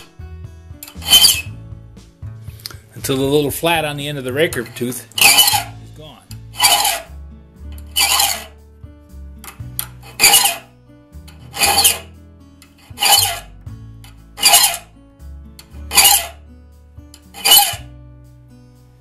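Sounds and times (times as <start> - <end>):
quiet background music: 0.0 - 19.0
file rasping on saw tooth: 0.9 - 1.6, 5.2 - 5.8, 6.4 - 7.1, 7.8 - 8.6, 10.0 - 10.7, 11.4 - 12.1, 12.7 - 13.5, 14.4 - 14.9, 15.9 - 16.4, 17.2 - 17.9.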